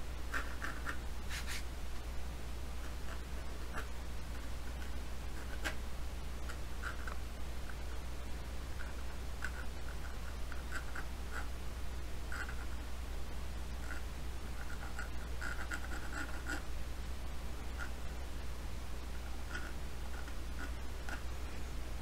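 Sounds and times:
steady low hum: 0:00.0 - 0:22.0
pencil scratching on paper: 0:00.3 - 0:01.7, 0:02.8 - 0:05.8, 0:06.4 - 0:07.2, 0:08.8 - 0:11.6, 0:12.3 - 0:12.8, 0:13.8 - 0:16.7, 0:19.2 - 0:21.3.

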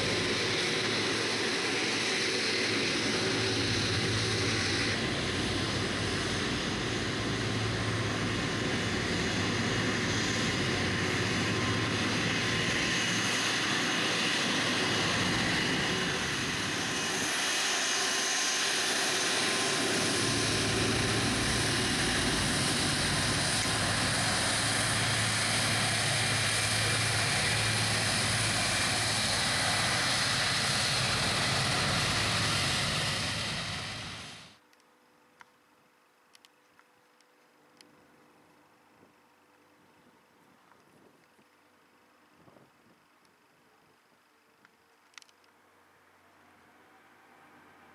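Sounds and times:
jet engines rushing: 0:00.0 - 0:34.6.

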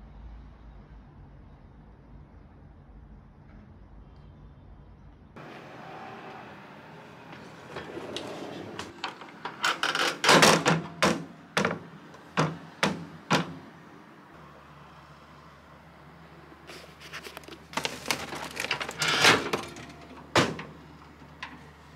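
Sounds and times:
scraping clatter: 0:07.0 - 0:13.6, 0:16.7 - 0:21.7
sharp knocks: 0:10.2 - 0:13.7.

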